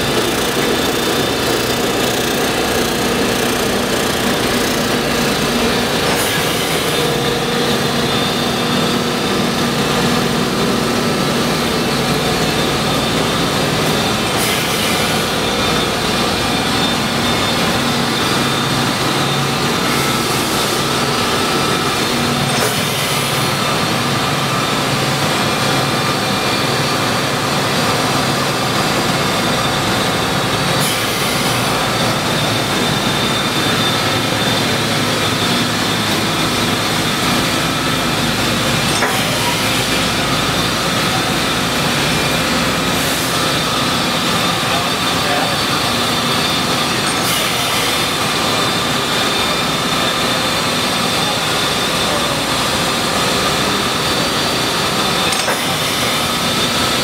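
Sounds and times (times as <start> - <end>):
surface grinder machinery drone: 0.0 - 57.0.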